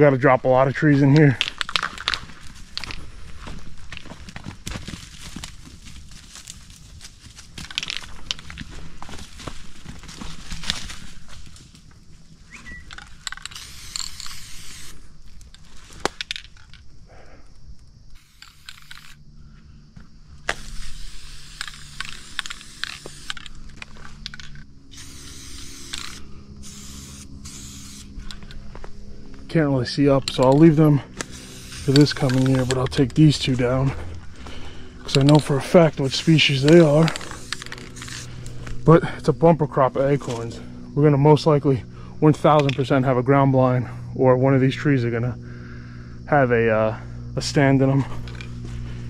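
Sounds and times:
footsteps crunching through dry leaves: 0:00.8 - 0:12.9, 0:26.5 - 0:40.9, 0:48.0 - 0:49.0.

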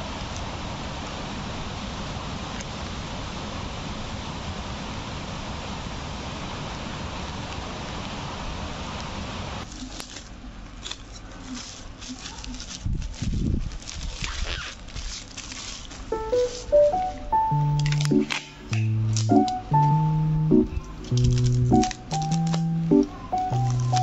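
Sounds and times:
paper rustling: 0:09.6 - 0:20.1, 0:20.8 - 0:24.0
plastic mailer crinkling: 0:09.6 - 0:24.0
steady hiss: 0:15.5 - 0:24.0.

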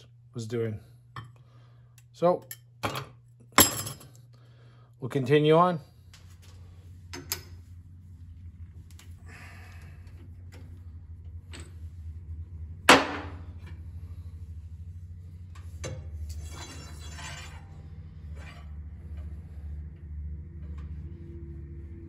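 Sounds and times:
steady low hum: 0:00.0 - 0:22.0
rattling metal scrape: 0:16.1 - 0:19.6.

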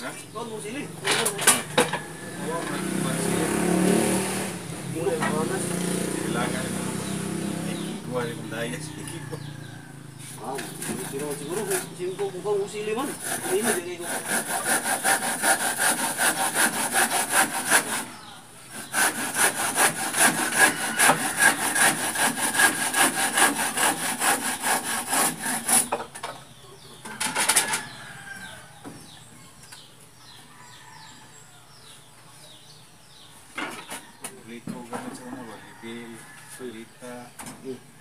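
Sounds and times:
handsaw cutting wood: 0:01.0 - 0:08.2, 0:10.2 - 0:26.1.

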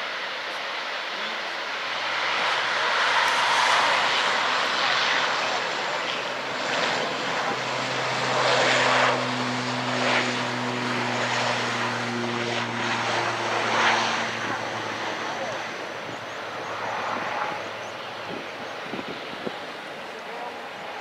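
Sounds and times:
jet engines rushing hiss: 0:00.0 - 0:21.0.

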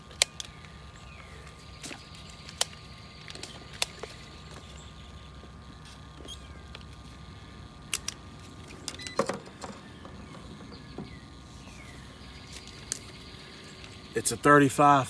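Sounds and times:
steady low hum: 0:00.0 - 0:15.0
sharp clicks and handling rattles: 0:07.8 - 0:11.4.

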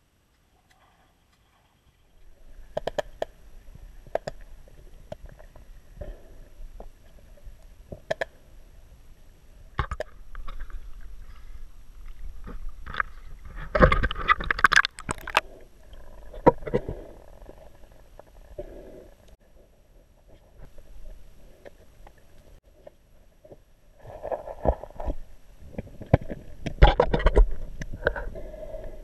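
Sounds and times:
underwater clicks and knocks: 0:02.7 - 0:03.4, 0:09.8 - 0:11.1, 0:12.0 - 0:15.4, 0:24.6 - 0:28.2
knocks and crackles: 0:24.3 - 0:28.2.

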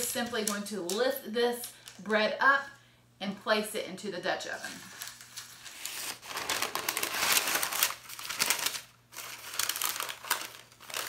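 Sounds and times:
parchment paper crinkling: 0:04.6 - 0:11.0.

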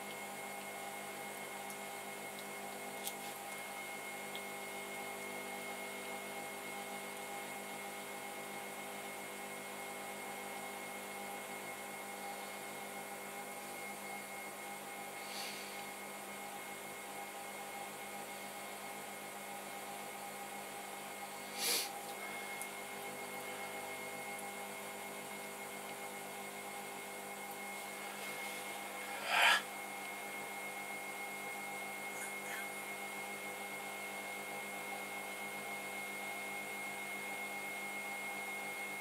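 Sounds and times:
pottery wheel motor humming: 0:22.2 - 0:36.3.

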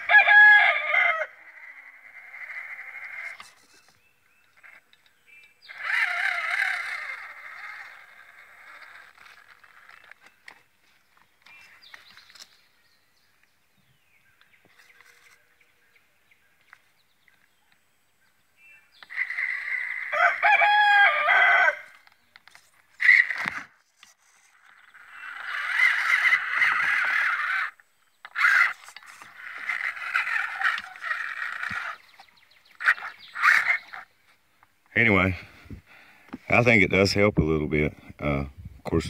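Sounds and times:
rooster crowing: 0:00.0 - 0:01.8, 0:19.7 - 0:22.0.

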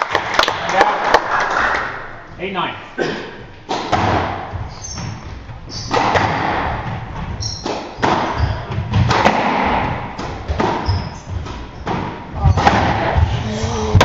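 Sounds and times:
shoes squeaking on wooden floor: 0:03.4 - 0:14.0
squash ball hitting rackets and walls: 0:03.6 - 0:14.0.

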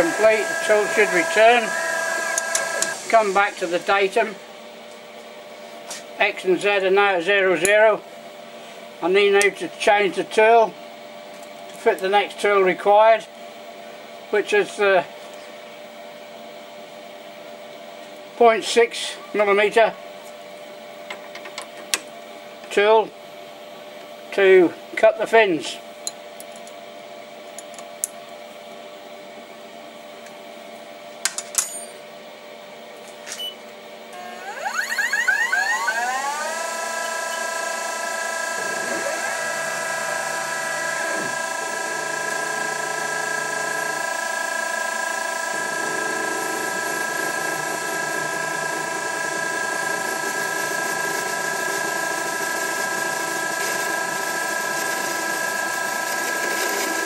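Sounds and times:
lathe spindle whine: 0:00.0 - 0:04.4, 0:34.1 - 0:57.0
lower hum: 0:34.1 - 0:41.4.

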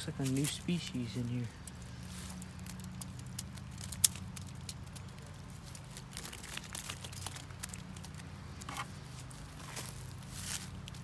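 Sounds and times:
rustles: 0:00.0 - 0:11.0
wire mesh trap clicking: 0:01.6 - 0:08.2.

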